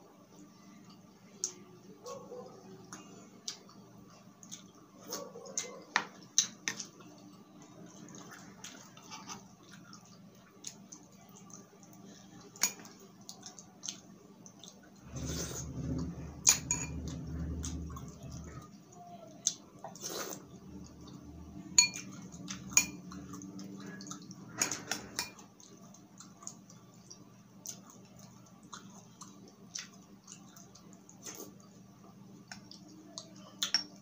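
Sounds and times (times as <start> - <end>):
low rumble: 15.0 - 18.8
spoon clinking against glass bowl: 16.5 - 17.0, 21.8 - 23.0.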